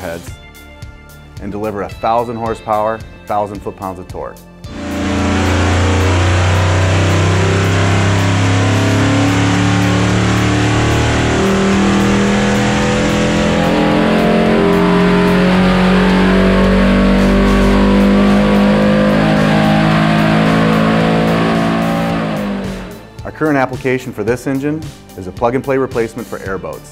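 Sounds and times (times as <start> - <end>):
rock music with electric guitar: 4.7 - 23.2
engine revving under load: 4.7 - 23.6.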